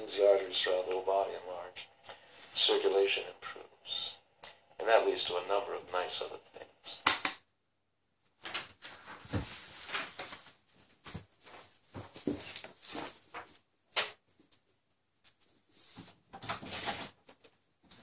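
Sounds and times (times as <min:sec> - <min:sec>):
spoken recording: 0:00.0 - 0:07.2
bedsheets rustling: 0:08.4 - 0:13.7.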